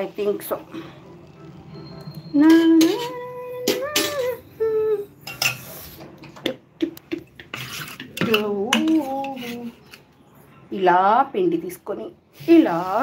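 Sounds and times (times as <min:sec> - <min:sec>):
steel utensils clinking: 0:02.2 - 0:04.5, 0:05.2 - 0:06.0, 0:07.0 - 0:10.1.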